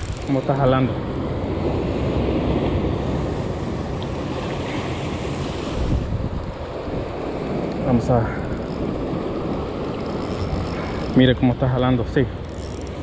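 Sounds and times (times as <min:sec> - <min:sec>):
ocean surf over rocks: 0:00.0 - 0:13.0
wind buffeting microphone: 0:05.5 - 0:13.0.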